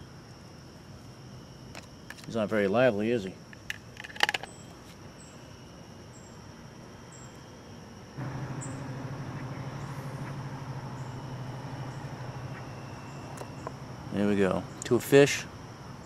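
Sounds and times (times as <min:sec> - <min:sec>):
faint high chirps: 0:08.2 - 0:15.0
steady low hum: 0:08.2 - 0:16.0.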